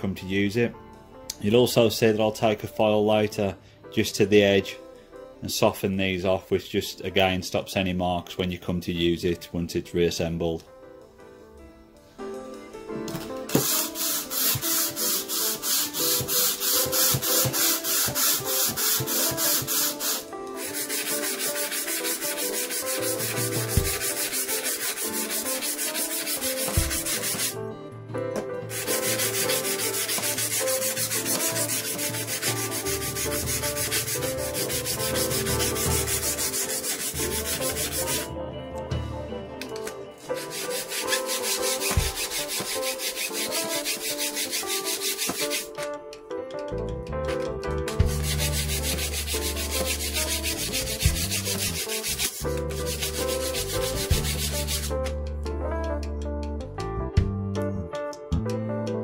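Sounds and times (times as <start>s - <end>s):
hand plane rasping on abrasive paper: 13.5s - 27.6s, 28.7s - 38.3s, 40.2s - 45.8s, 48.0s - 55.1s.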